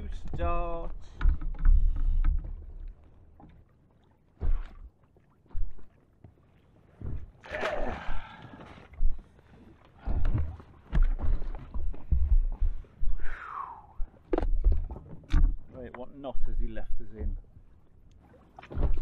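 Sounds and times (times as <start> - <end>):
water knocking against boat hull: 0.0 - 2.7, 17.0 - 17.5.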